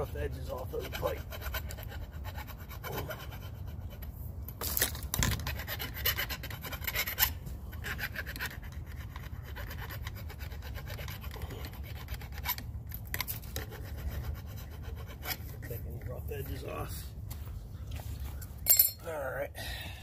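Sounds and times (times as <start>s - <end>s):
file rasping on pipe: 0.0s - 4.2s, 5.2s - 16.1s.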